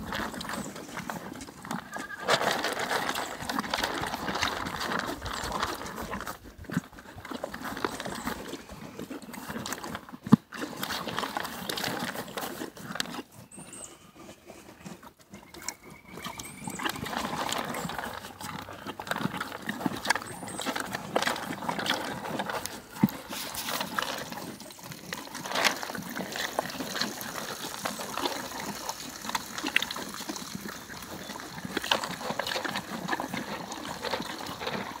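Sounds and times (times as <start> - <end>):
pellets rattling in a tub: 0.0 - 6.2, 16.2 - 35.0
horse crunching and chewing feed: 0.0 - 35.0.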